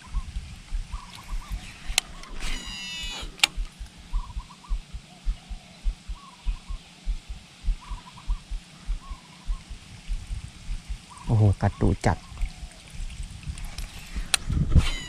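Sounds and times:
soft rhythmic reeling thumps: 0:00.0 - 0:11.3
bird calling: 0:00.0 - 0:13.1, 0:14.1 - 0:15.0
fishing reel brake whine: 0:01.6 - 0:03.5, 0:14.8 - 0:15.0.

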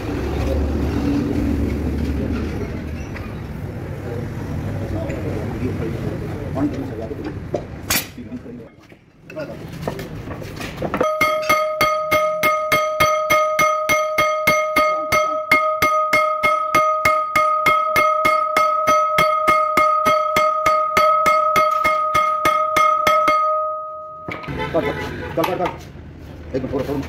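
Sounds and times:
hammer striking metal: 0:11.0 - 0:24.6.

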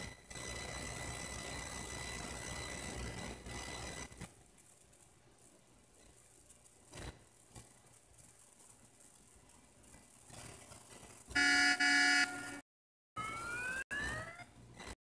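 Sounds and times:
multi-tone horn blasts: 0:11.3 - 0:12.6.

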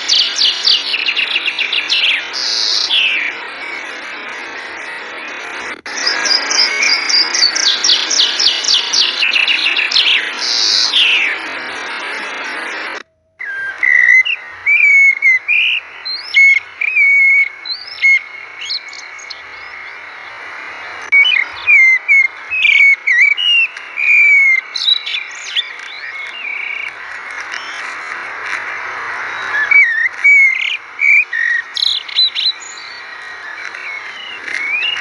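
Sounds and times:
high bird-like chirps and whistles: 0:06.0 - 0:12.4, 0:13.4 - 0:20.2, 0:29.3 - 0:35.0.

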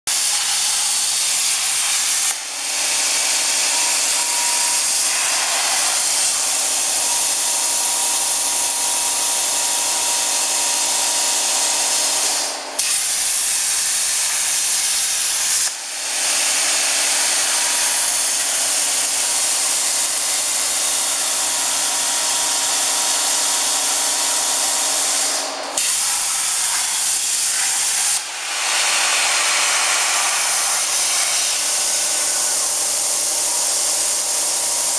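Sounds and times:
cutting torch gas hiss: 0:00.1 - 0:34.9.

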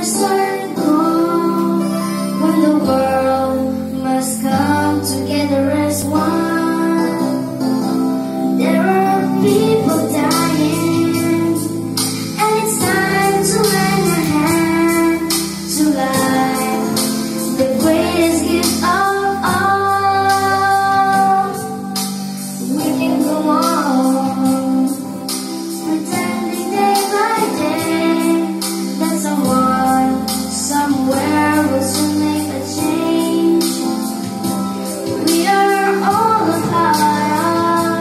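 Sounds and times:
children singing: 0:00.0 - 0:07.9, 0:08.5 - 0:25.0, 0:25.8 - 0:34.2, 0:35.1 - 0:38.0
instrumental music with steady beat: 0:00.0 - 0:38.0.

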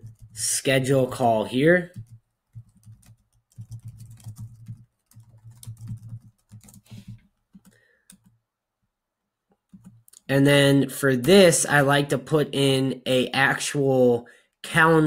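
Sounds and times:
typing on computer keyboard: 0:00.0 - 0:00.4, 0:01.8 - 0:08.4, 0:09.7 - 0:10.1.

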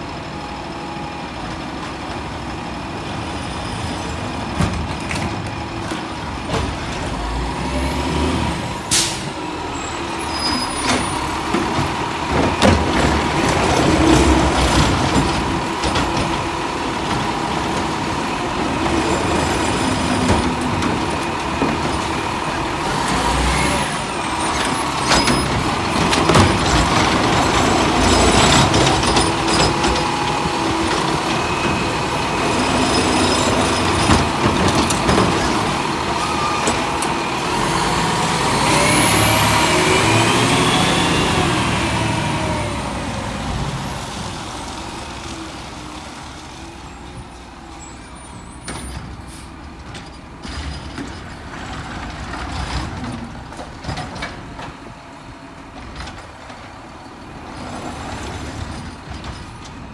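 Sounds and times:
garbage truck diesel engine: 0:00.0 - 0:59.9
hydraulic arm lifting cart: 0:03.5 - 0:59.9
air brake hiss: 0:08.9 - 0:09.4, 0:49.2 - 0:49.6.

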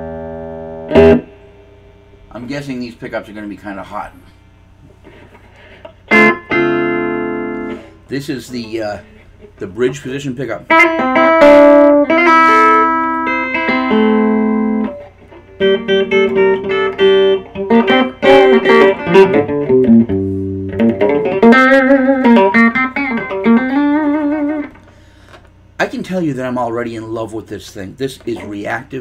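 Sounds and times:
picked guitar notes: 0:00.0 - 0:01.6, 0:05.0 - 0:27.1
clean electric guitar chords: 0:00.0 - 0:02.2, 0:05.9 - 0:08.0, 0:10.7 - 0:25.0.

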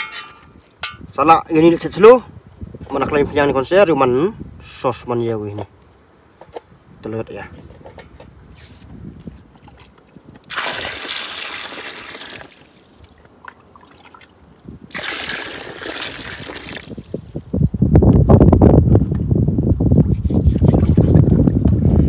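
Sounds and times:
water pouring in a trickle: 0:09.7 - 0:14.3, 0:14.9 - 0:17.4.

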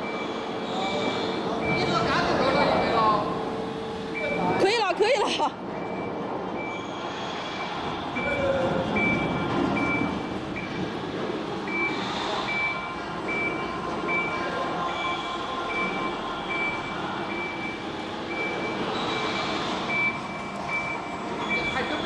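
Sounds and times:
short high warning beeps: 0:04.1 - 0:04.7, 0:07.6 - 0:10.8, 0:11.7 - 0:22.0.

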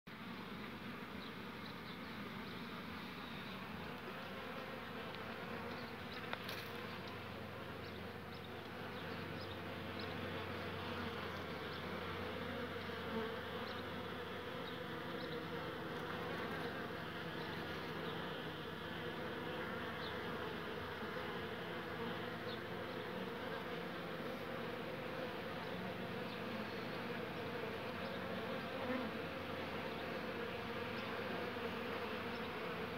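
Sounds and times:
honey bees buzzing: 0:00.1 - 0:32.9.

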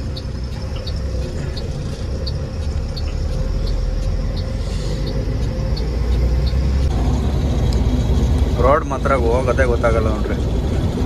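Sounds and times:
light ticking: 0:00.0 - 0:07.0
diesel truck engine rumble: 0:00.0 - 0:11.0
road noise: 0:00.0 - 0:11.0.

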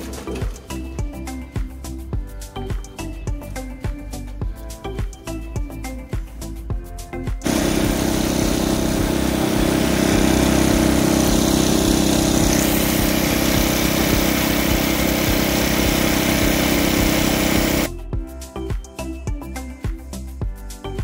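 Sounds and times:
snow blower engine running: 0:07.4 - 0:17.9
snow rushing from chute: 0:07.5 - 0:17.9.

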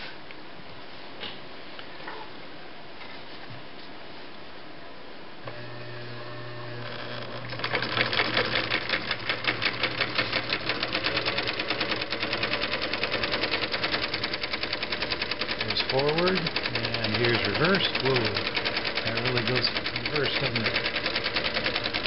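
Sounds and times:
sewing machine humming: 0:05.5 - 0:22.0
sewing machine click: 0:07.2 - 0:22.0
needle mechanism ticking: 0:07.4 - 0:22.0.

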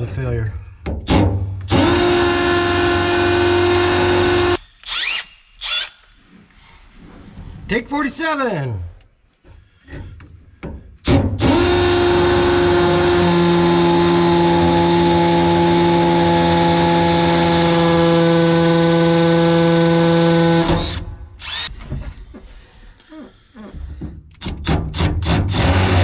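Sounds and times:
cordless drill running: 0:01.7 - 0:06.0, 0:11.4 - 0:21.7, 0:25.2 - 0:26.0.

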